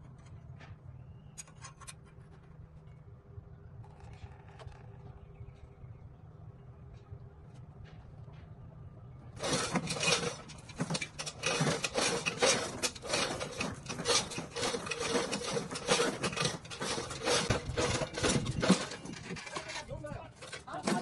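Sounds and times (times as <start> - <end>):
rough irregular scraping: 9.4 - 21.0.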